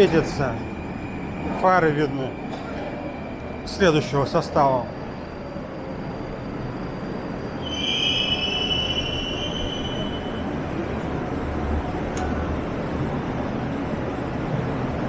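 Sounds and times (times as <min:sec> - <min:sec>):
train wheels squealing on rails: 0:00.0 - 0:11.3
low rumble of train: 0:00.0 - 0:15.0.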